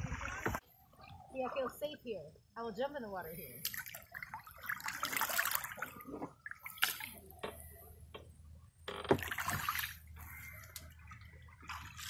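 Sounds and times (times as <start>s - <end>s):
paddle splashing in water: 0.0s - 0.6s, 3.6s - 7.7s, 8.9s - 12.0s.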